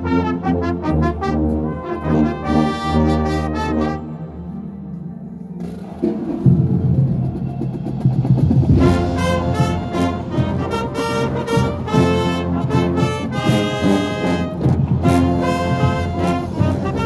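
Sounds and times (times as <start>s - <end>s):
low brass: 0.0s - 5.0s, 8.7s - 17.0s
marching band brass chords: 0.0s - 5.0s, 5.6s - 17.0s.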